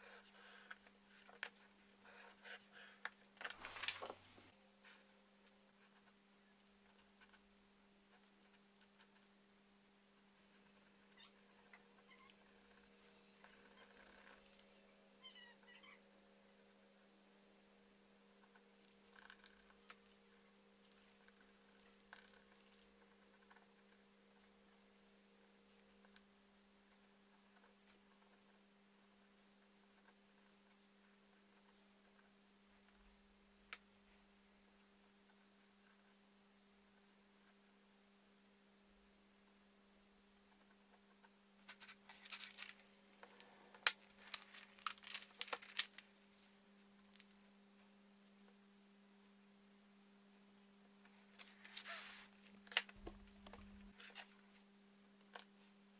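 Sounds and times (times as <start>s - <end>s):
low electrical hum: 0.0s - 55.9s
paper rustling: 3.4s - 5.0s, 41.7s - 42.9s, 44.1s - 46.5s, 51.2s - 54.4s.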